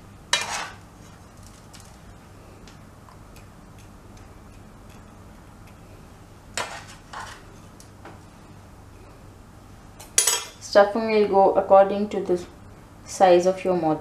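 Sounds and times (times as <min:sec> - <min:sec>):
clinks on steel plate: 0:10.2 - 0:10.6.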